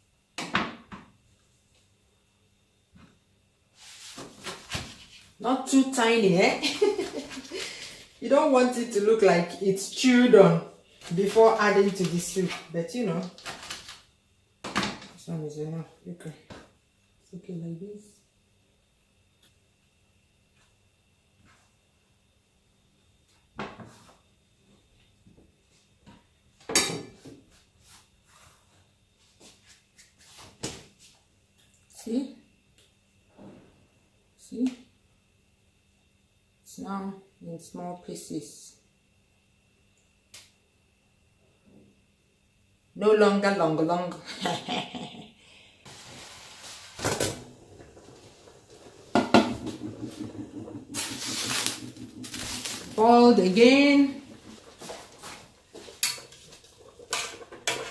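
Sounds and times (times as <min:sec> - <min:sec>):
metal lid clank: 0:26.7 - 0:27.2
water boiling in pot: 0:45.9 - 0:57.9
pressure cooker hiss: 0:50.9 - 0:57.8
leaves rustling: 0:51.0 - 0:54.5.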